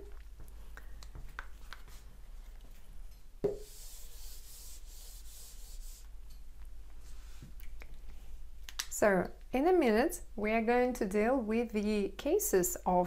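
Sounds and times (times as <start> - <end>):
eraser knock on whiteboard: 3.4 - 3.7
eraser rubbing whiteboard: 3.6 - 6.1.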